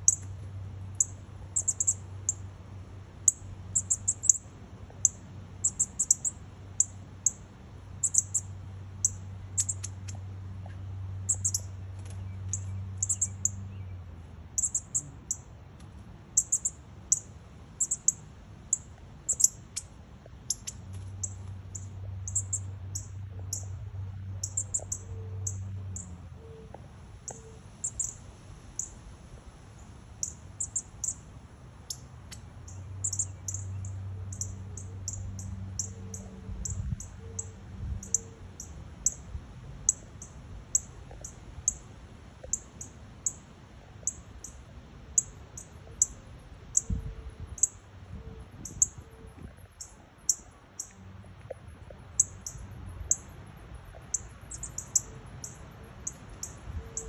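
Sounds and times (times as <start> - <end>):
nestlings chirping: 0.0 - 0.3, 0.9 - 2.4, 3.3 - 4.4, 5.0 - 7.4, 8.0 - 10.2, 11.3 - 13.9, 14.6 - 15.4, 16.4 - 19.9, 20.5 - 26.1.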